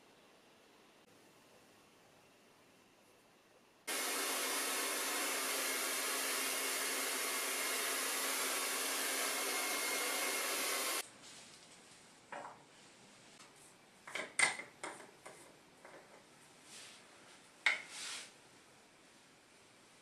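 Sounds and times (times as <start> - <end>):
hair dryer blowing: 3.9 - 11.0.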